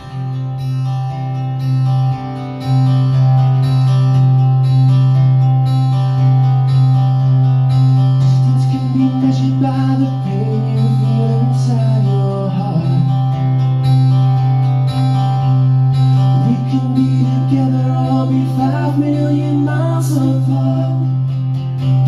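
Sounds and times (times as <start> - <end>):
bass guitar line: 0.0 - 22.0
strummed acoustic guitar: 0.0 - 22.0
person singing: 8.2 - 13.3, 16.4 - 21.3.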